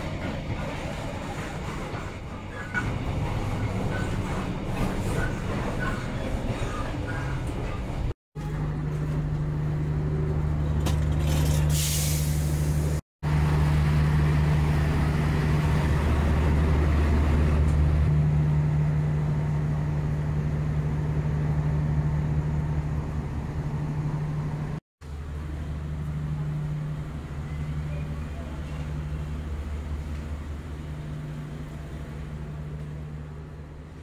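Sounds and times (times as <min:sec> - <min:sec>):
air release hiss: 0:11.7 - 0:12.8
diesel train engine idling: 0:12.4 - 0:34.0.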